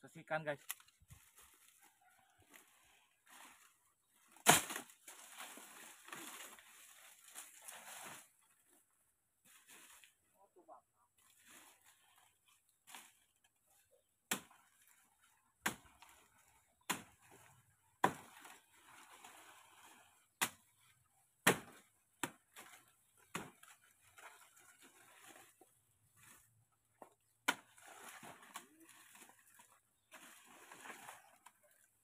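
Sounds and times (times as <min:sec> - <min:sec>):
leaves rustling: 0:00.6 - 0:08.5
blade chopping plant trunk: 0:04.4 - 0:05.0, 0:21.4 - 0:22.5.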